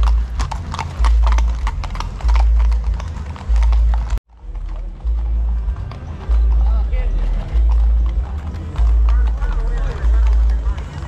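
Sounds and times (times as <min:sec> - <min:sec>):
horses' hooves on asphalt: 0:00.0 - 0:11.0.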